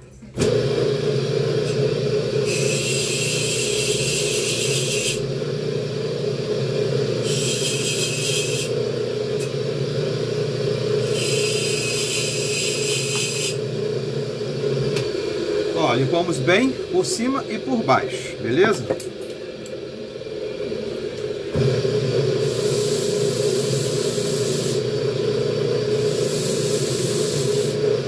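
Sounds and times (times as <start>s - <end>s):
bench grinder running: 0.4s - 28.0s.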